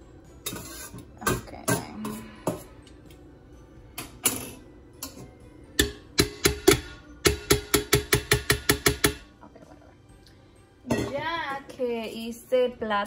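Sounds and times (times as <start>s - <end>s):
utensil tapping metal pot: 4.0s - 9.3s.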